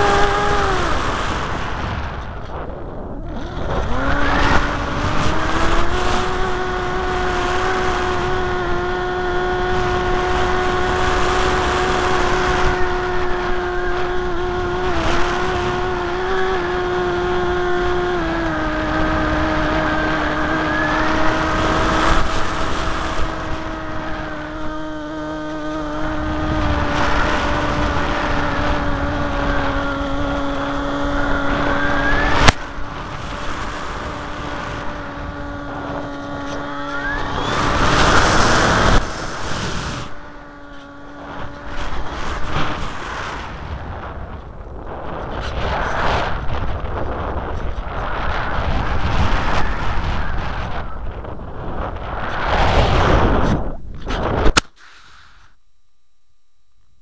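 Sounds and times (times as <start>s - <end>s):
propeller motor droning whine: 0.0s - 54.6s
wind rush: 0.0s - 54.6s.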